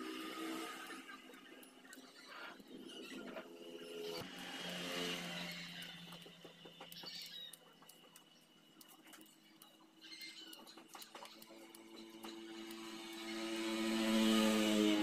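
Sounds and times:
vehicle engine passing by: 0.0 - 1.4, 3.9 - 6.8, 12.5 - 15.0.

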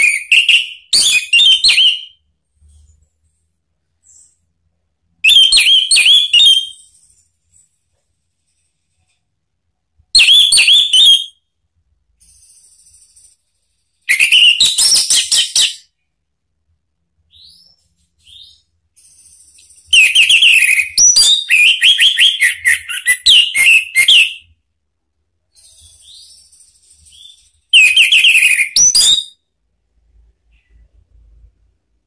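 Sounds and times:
faint high chirps: 17.2 - 31.5.

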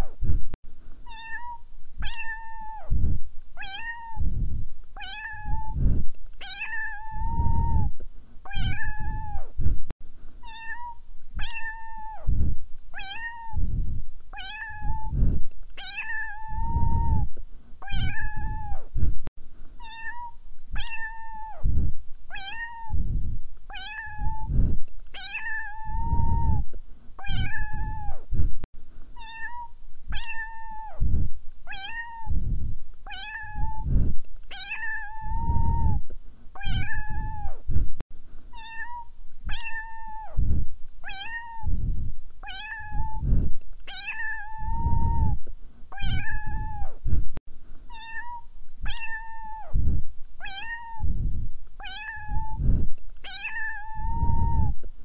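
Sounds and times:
cat meowing: 1.1 - 2.9, 3.6 - 4.2, 5.0 - 5.8, 6.4 - 7.9, 8.5 - 9.5, 10.4 - 12.3, 13.0 - 13.6, 14.4 - 15.2, 15.8 - 18.8, 19.8 - 21.7, 22.3 - 23.0, 23.7 - 24.5, 25.2 - 26.6, 27.2 - 28.2, 29.2 - 31.0, 31.7 - 32.3, 33.1 - 33.9, 34.5 - 36.0, 36.6 - 37.6, 38.5 - 40.4, 41.0 - 41.7, 42.4 - 43.2, 43.9 - 45.4, 46.0 - 47.0, 47.9 - 49.8, 50.4 - 51.1, 51.8 - 52.6, 53.2 - 54.8.

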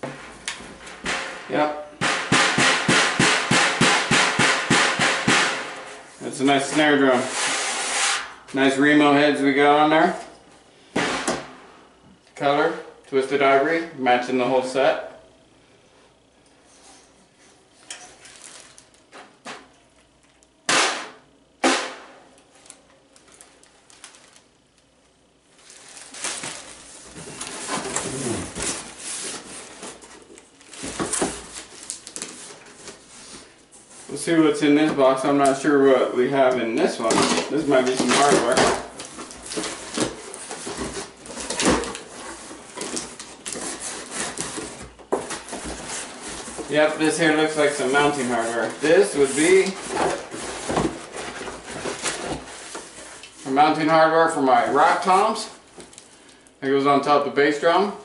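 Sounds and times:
snare drum hits: 20.7 - 22.1
cardboard flaps scraping: 25.6 - 34.1, 47.6 - 53.5.

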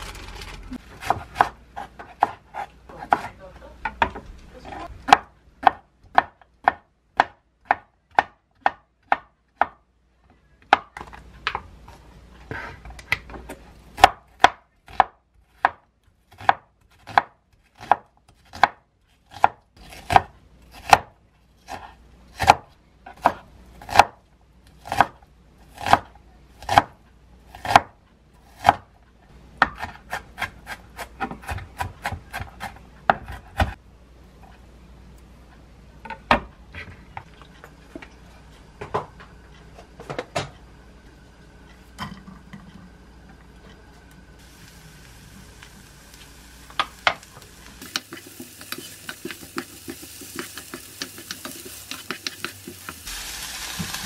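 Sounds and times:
knife chopping on wooden board: 1.0 - 3.3, 14.0 - 21.1, 21.7 - 24.2, 25.8 - 27.0, 27.6 - 27.9, 28.6 - 28.8, 29.6 - 33.8.

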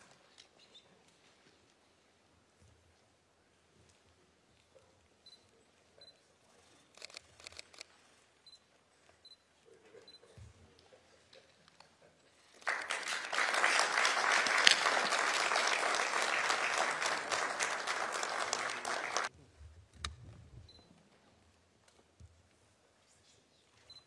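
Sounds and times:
people applauding: 12.6 - 19.3.

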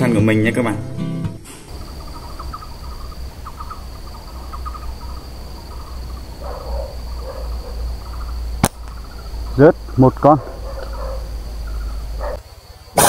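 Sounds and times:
high insect buzz: 1.6 - 13.0
slingshot snap: 8.6 - 9.0.

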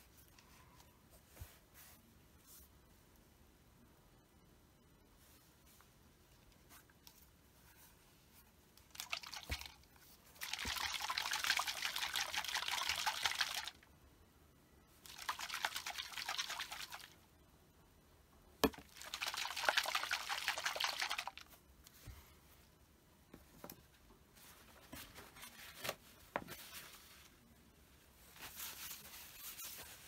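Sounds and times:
capsules sloshing in plastic bottle: 8.9 - 13.7.

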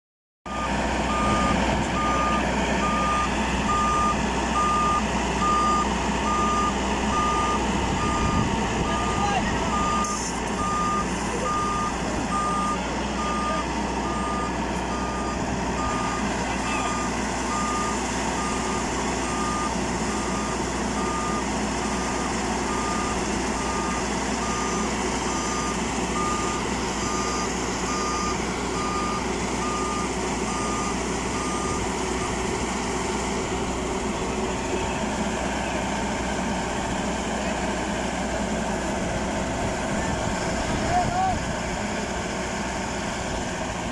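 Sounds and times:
electronic warning beeps: 0.5 - 32.4
combine harvester running: 0.5 - 43.9.

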